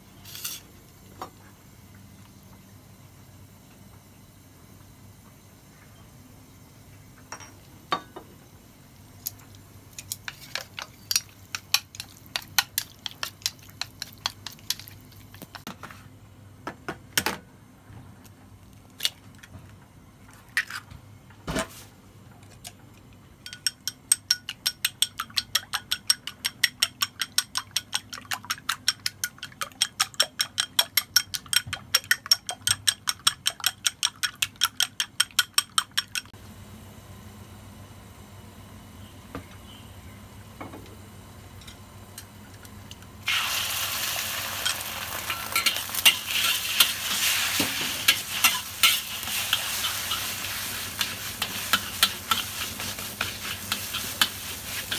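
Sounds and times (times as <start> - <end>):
egg beaten in ceramic bowl: 10.2 - 15.6, 23.4 - 36.3
utensil clinking in steel bowl: 44.6 - 54.9.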